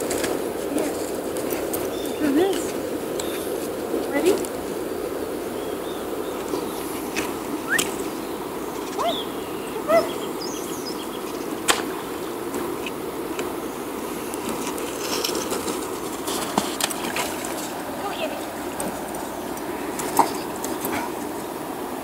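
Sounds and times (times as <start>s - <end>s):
low rush of outdoor ambience: 0.0s - 22.0s
footsteps on dirt: 14.3s - 21.2s.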